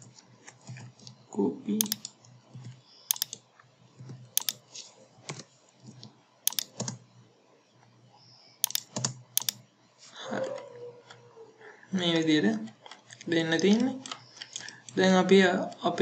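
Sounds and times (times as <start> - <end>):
keyboard and mouse clicks: 1.8 - 3.4, 4.0 - 4.7, 5.3 - 7.0, 8.6 - 9.6.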